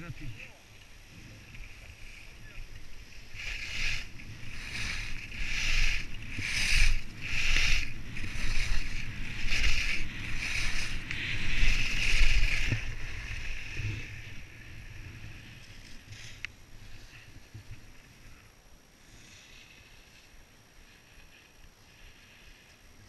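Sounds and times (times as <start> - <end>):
skis scraping over snow: 0.0 - 23.0
wind rumble on microphone: 1.0 - 18.4.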